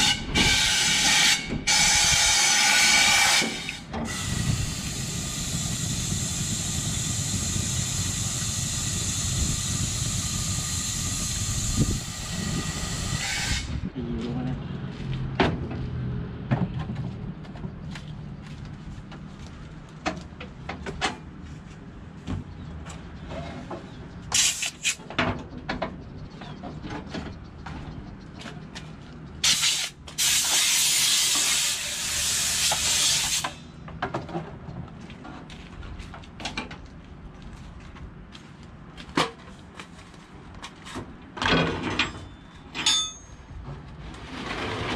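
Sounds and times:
pressurised spray blast: 0.9 - 13.7, 24.3 - 25.0, 29.4 - 33.6
metal clinks and knocks: 41.4 - 43.6.

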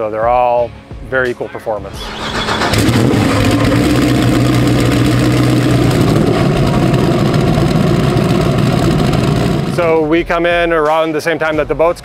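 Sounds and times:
racing engine droning: 1.9 - 10.2.

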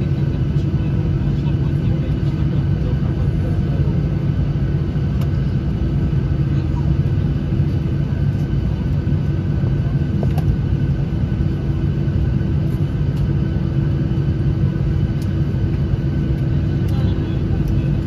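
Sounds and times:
jet engines idling: 0.0 - 18.0.

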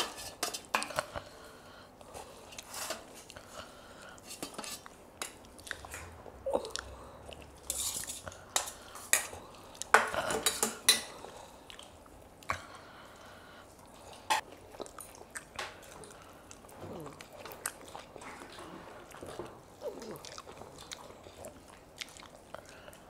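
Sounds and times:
chewing: 2.0 - 10.2, 11.1 - 23.0
spoons clinking on steel plates: 7.6 - 11.1.

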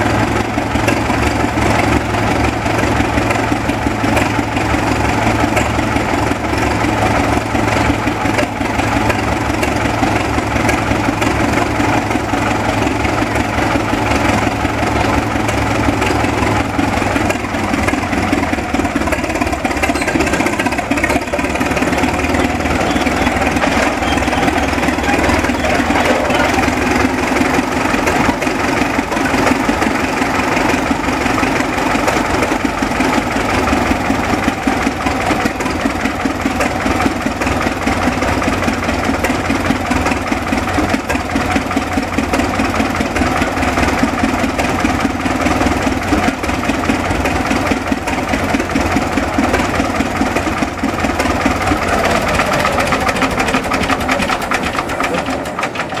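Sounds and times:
tractor engine idling: 0.0 - 56.0.

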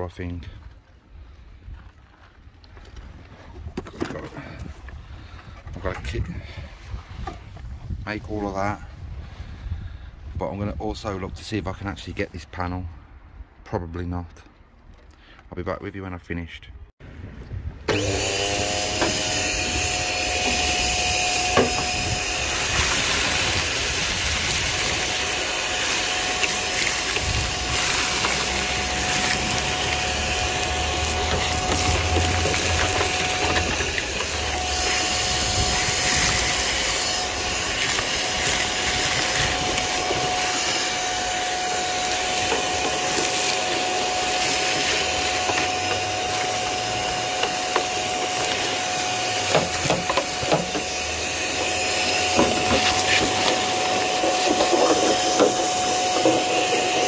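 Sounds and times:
debris rattling in hose: 17.9 - 57.0
vacuum cleaner motor whine: 17.9 - 57.0.

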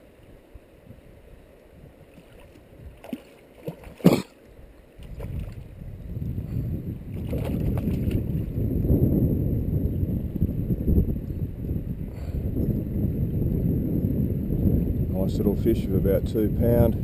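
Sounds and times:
fish splashing in water: 2.1 - 4.4, 7.2 - 8.2
low rumbling noise: 4.5 - 17.0.

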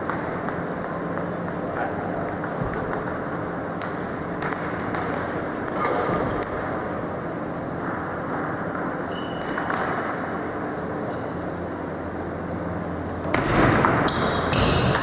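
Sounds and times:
table tennis balls clicking: 0.0 - 6.7
sports hall background noise: 0.0 - 15.0.

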